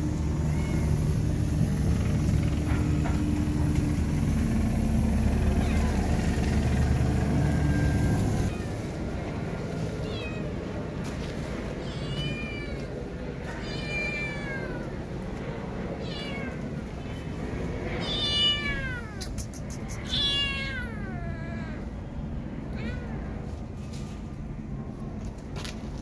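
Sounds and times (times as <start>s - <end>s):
kitten meowing: 5.6s - 6.0s, 13.6s - 14.9s, 16.0s - 16.6s, 18.0s - 21.8s.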